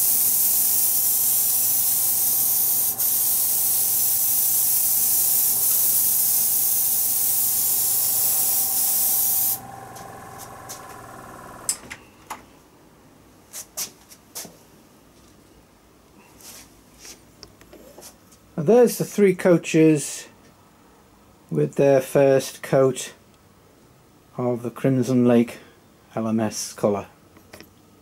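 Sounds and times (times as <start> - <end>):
airbrush air hiss: 0.0 - 11.7
steady hum: 0.0 - 12.0.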